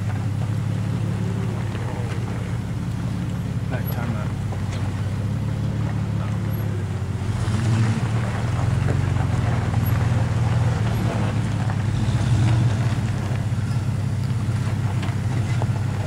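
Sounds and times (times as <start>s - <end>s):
vehicle engines droning at low revs: 0.0s - 16.0s.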